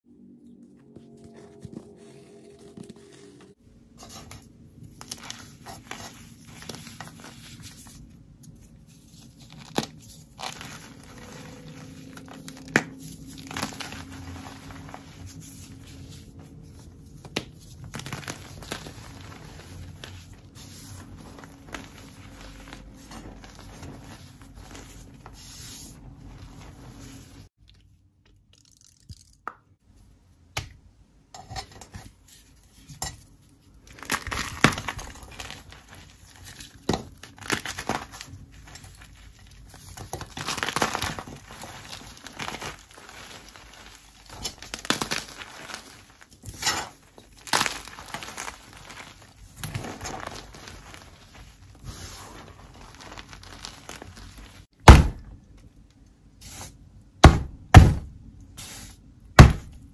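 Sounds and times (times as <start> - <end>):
chalk crunching and crumbling: 4.0 - 27.5, 33.7 - 54.7.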